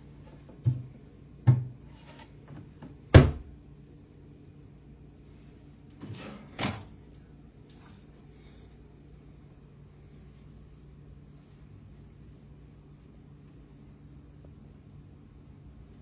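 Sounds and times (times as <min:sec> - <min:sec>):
ottoman lid knocks and thumps: 0:01.5 - 0:01.8.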